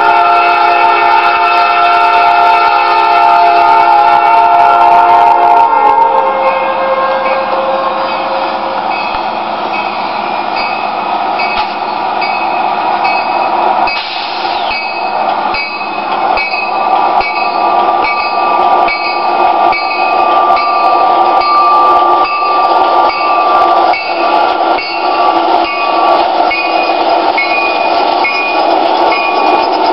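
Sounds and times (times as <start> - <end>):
diesel locomotive engine and rail noise: 0.0 - 29.9
steady high tone: 0.0 - 29.9
bell ringing: 8.1 - 29.9.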